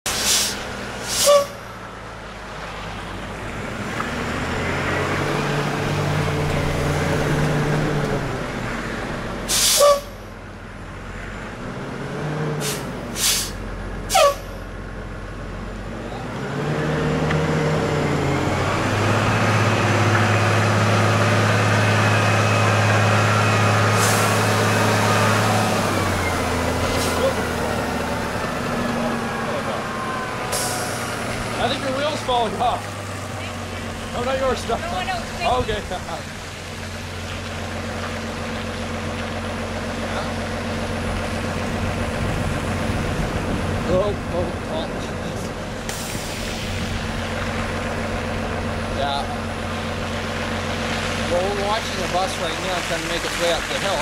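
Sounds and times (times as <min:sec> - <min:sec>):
air brake hisses: 0:00.1 - 0:01.6, 0:09.5 - 0:10.2, 0:12.6 - 0:14.6
bus drivetrain revving: 0:00.1 - 0:54.0.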